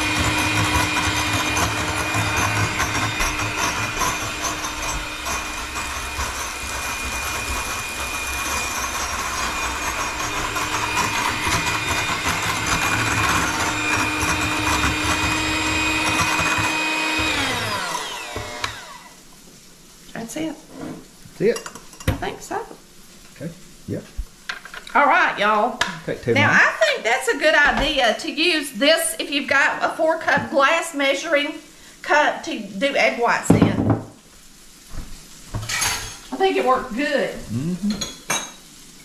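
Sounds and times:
electric hand mixer whirring: 0.0 - 19.2.

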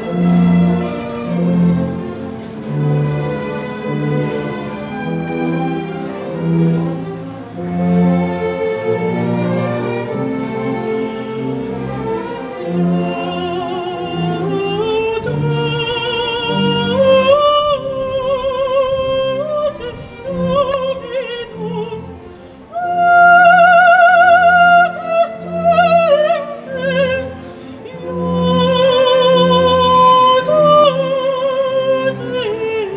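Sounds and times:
sustained orchestral strings: 0.0 - 32.9
operatic voice singing: 12.4 - 32.9.

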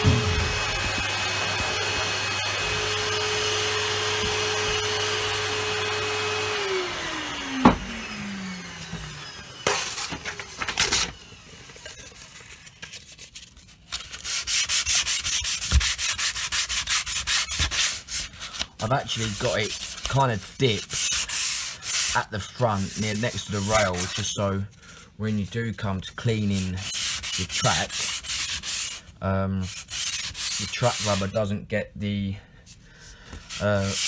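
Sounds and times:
small vacuum cleaner running: 0.0 - 12.6
sandpaper rubbing back and forth: 11.7 - 24.6, 25.3 - 31.5, 33.0 - 34.0.

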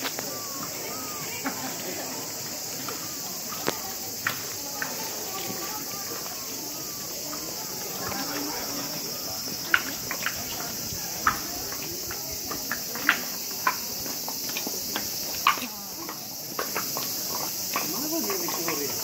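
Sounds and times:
footsteps tapping: 3.6 - 19.0.

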